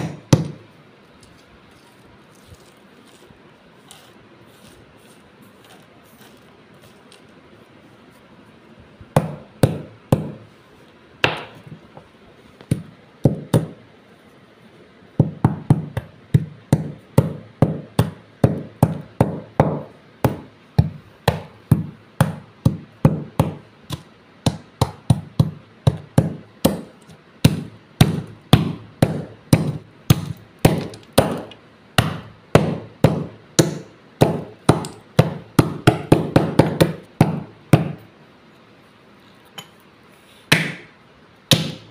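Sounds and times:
stone pounding clay on tile floor: 0.0 - 3.2, 9.1 - 10.5, 11.2 - 11.8, 12.6 - 13.8, 15.2 - 38.0, 41.5 - 41.9.

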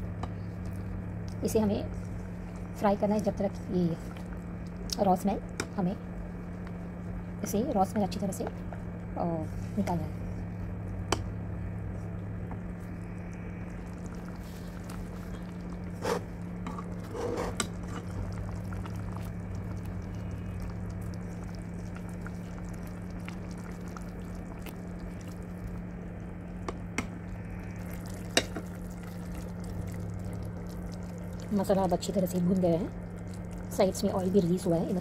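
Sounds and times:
steady low hum: 0.0 - 35.0
oil popping: 12.4 - 35.0.

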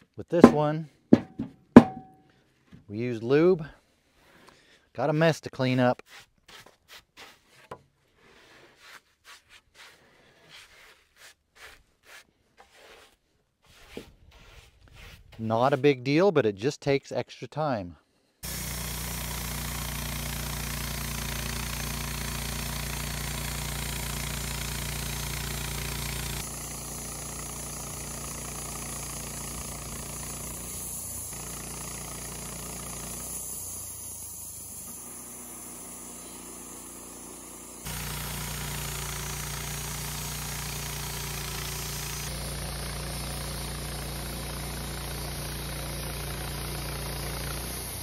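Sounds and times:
bandsaw mill cutting a log: 0.4 - 0.7, 18.4 - 48.0.

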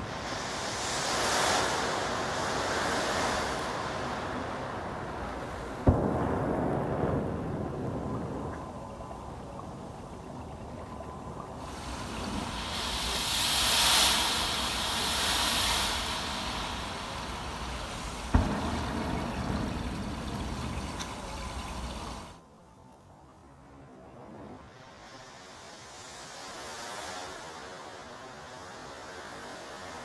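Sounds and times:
sparklers fizzing hiss: 0.0 - 10.2, 11.2 - 22.4, 24.6 - 30.0
sharp pop: 18.3 - 21.3.

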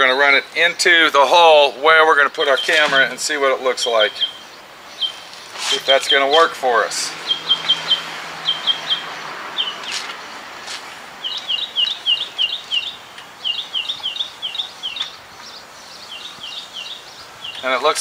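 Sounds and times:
small bird chirping: 3.8 - 6.4, 7.0 - 10.4, 11.2 - 18.0.

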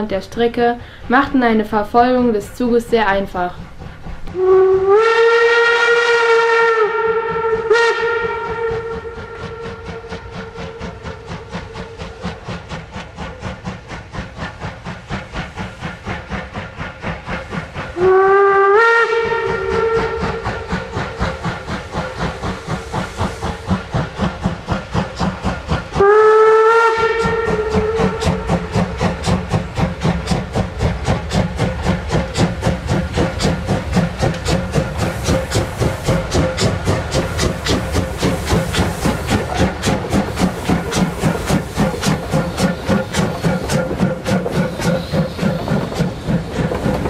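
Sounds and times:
steam locomotive exhaust beat: 0.0 - 47.0
steam hissing: 0.2 - 47.0
steam whistle blasts: 4.3 - 11.8, 18.0 - 20.9, 26.0 - 28.8.

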